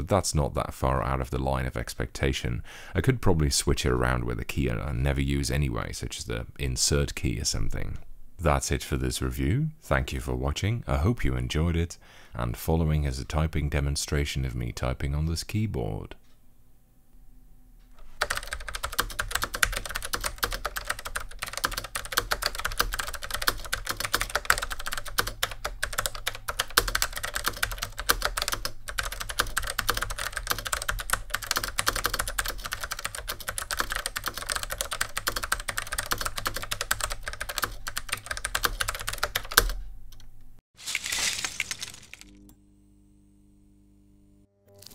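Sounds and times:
mechanical keyboard typing: 18.2s - 39.8s.

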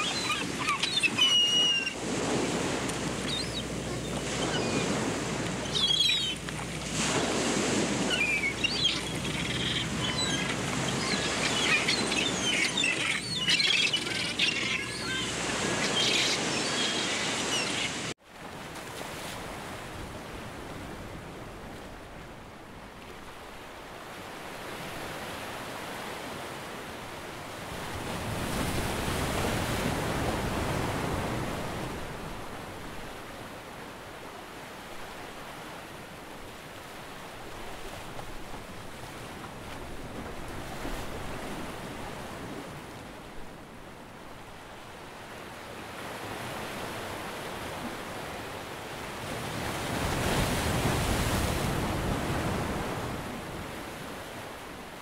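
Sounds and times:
ocean waves washing in: 0.0s - 21.6s.

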